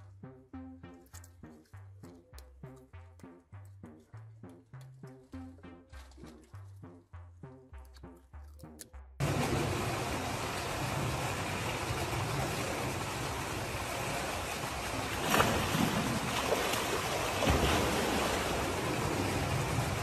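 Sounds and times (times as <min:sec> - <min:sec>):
water sloshing and splashing: 0:09.2 - 0:20.0.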